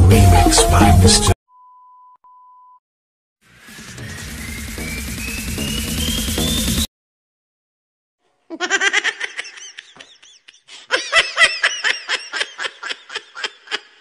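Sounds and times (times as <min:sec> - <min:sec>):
high-pitched laughter: 0:08.5 - 0:14.0.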